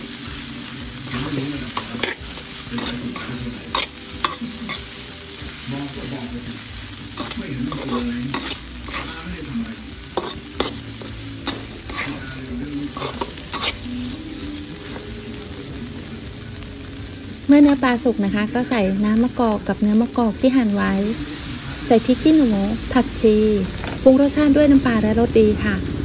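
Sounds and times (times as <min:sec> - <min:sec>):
food sizzling in a wok: 0:00.0 - 0:26.0
spatula scraping and tapping wok: 0:01.0 - 0:05.1, 0:07.1 - 0:14.2.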